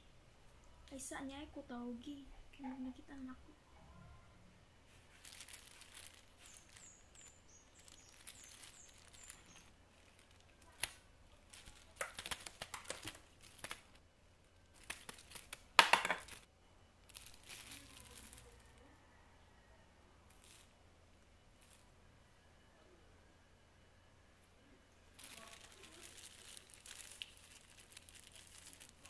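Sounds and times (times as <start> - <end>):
rustling and crinkling: 4.8 - 18.8, 20.3 - 21.9, 25.1 - 29.0
faint high chirps: 5.2 - 12.1.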